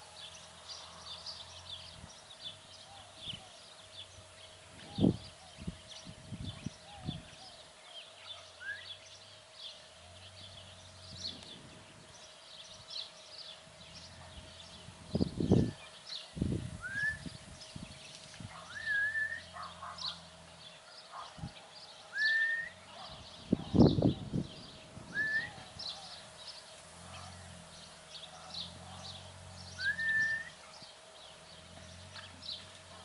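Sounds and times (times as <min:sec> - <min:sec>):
birds chirping: 0:00.0 - 0:33.0
bird rising whistle: 0:16.8 - 0:17.3, 0:18.7 - 0:19.5, 0:22.1 - 0:22.8, 0:25.1 - 0:25.7, 0:29.8 - 0:30.6.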